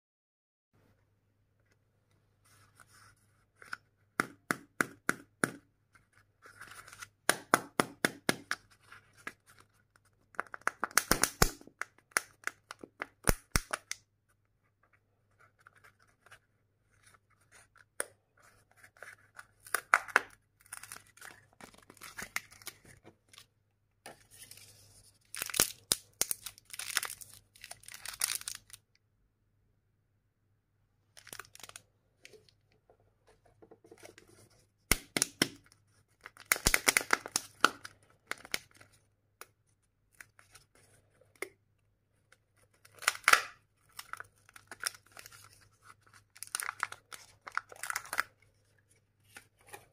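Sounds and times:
foil wrapper crinkling and tearing: 0:25.3 - 0:28.8, 0:31.2 - 0:31.8, 0:42.9 - 0:48.4.

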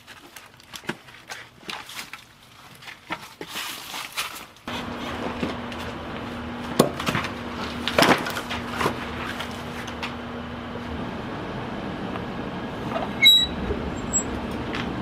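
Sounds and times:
steady low hum: 0:04.7 - 0:15.0.

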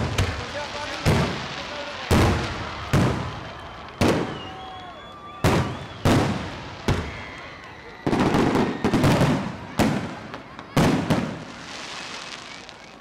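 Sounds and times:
firework shells booming: 0:05.4 - 0:07.2.

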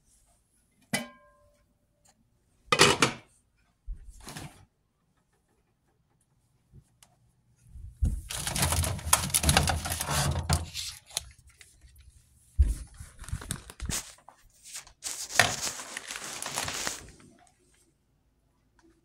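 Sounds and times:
crinkling handling noise: 0:07.9 - 0:17.9.

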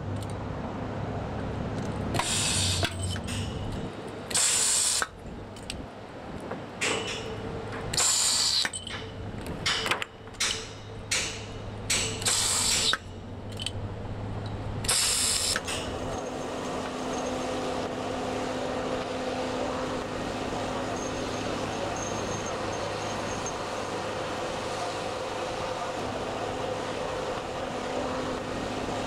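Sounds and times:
steady background noise: 0:00.0 - 0:29.0
welding arc hissing bursts: 0:02.2 - 0:02.9, 0:04.3 - 0:05.1, 0:08.0 - 0:08.7, 0:12.2 - 0:13.0, 0:14.9 - 0:15.6.

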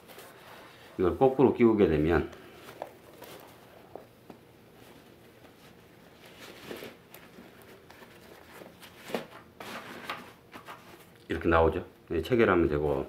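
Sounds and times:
fabric rustling and scraping: 0:04.7 - 0:11.1.

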